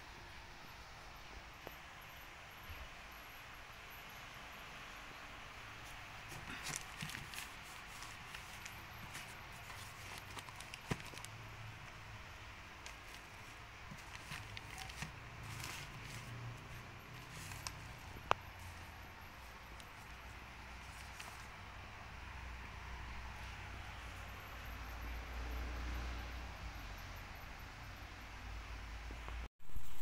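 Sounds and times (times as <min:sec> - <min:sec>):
plastic wrapper crinkling: 0:06.3 - 0:11.4, 0:12.8 - 0:20.2, 0:20.8 - 0:21.5.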